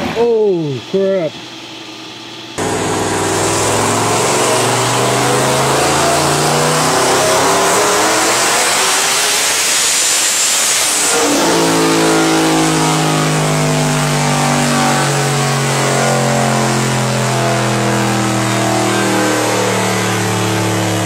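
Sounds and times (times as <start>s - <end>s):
loud rushing hiss: 2.6s - 13.4s
car engine running hard: 2.6s - 21.0s.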